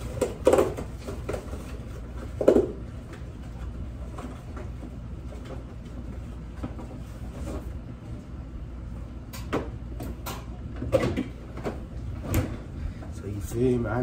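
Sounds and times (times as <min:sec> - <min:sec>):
refrigerator low hum: 0:00.0 - 0:14.0.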